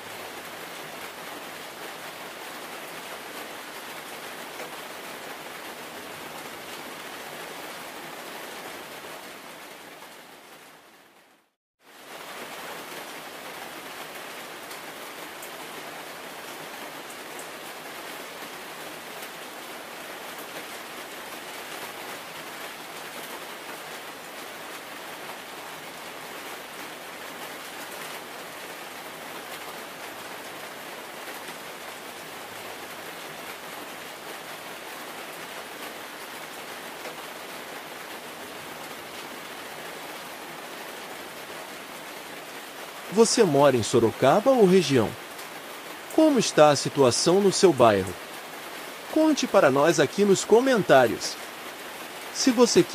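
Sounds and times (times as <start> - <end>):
heavy rain hissing: 42.8 - 52.9.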